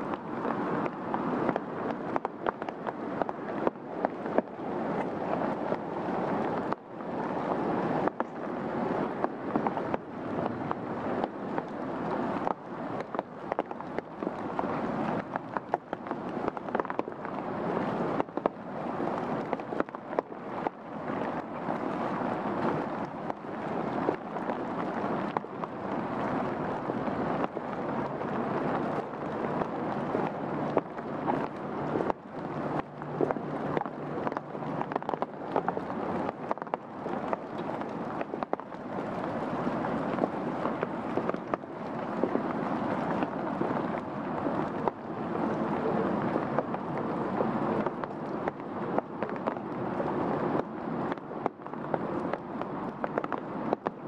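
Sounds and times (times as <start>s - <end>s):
rain falling through trees: 0.0s - 54.0s
raindrops tapping on leaves: 0.0s - 54.0s.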